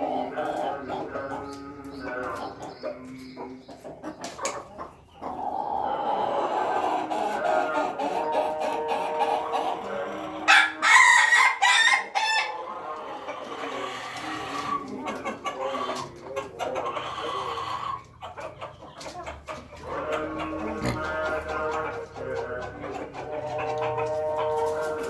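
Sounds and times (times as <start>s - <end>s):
hens clucking: 0.0s - 25.0s
rooster crowing: 10.4s - 12.5s.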